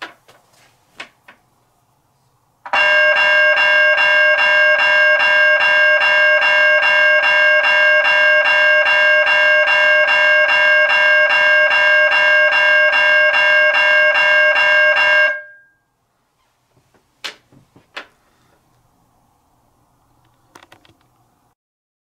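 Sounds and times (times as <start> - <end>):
electronic crossing bell ringing: 2.7 - 15.9
small knocks: 16.7 - 18.2, 20.2 - 21.2.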